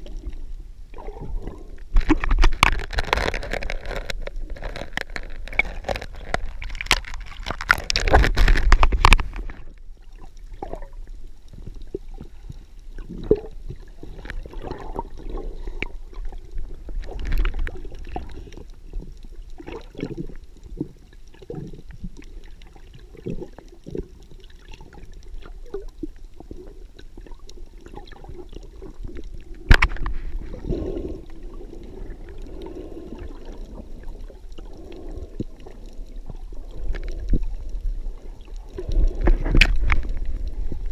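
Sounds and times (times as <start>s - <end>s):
muffled underwater gurgling: 0.0s - 40.9s.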